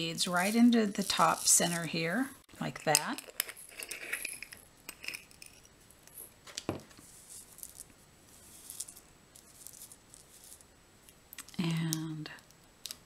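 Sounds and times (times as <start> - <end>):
beads clinking in a jar: 0.0 - 6.4, 7.0 - 10.7.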